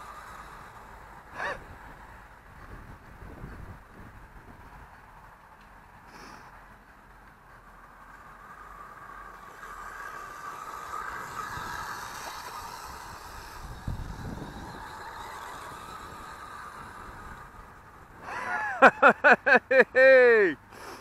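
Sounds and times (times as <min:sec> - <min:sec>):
toy car electric motor whining: 0:00.0 - 0:03.0, 0:07.7 - 0:19.1.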